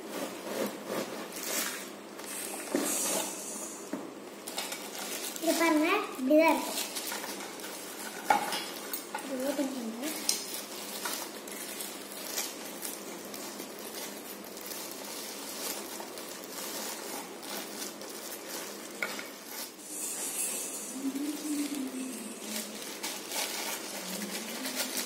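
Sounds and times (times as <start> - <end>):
plastic packaging crinkling: 4.3 - 19.8, 20.9 - 25.0.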